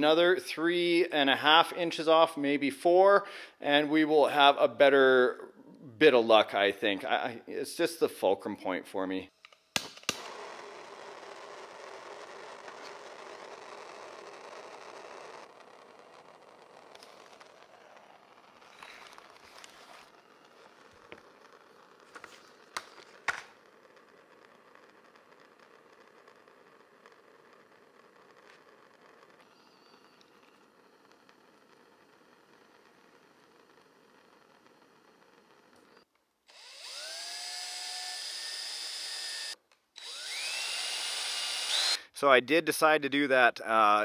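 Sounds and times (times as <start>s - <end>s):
electric power tool whining: 10.1s - 42.1s.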